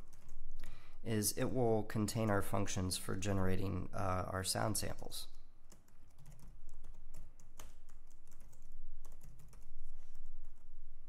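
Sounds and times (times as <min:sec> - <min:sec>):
typing on computer keyboard: 0:00.0 - 0:00.4, 0:05.7 - 0:10.7.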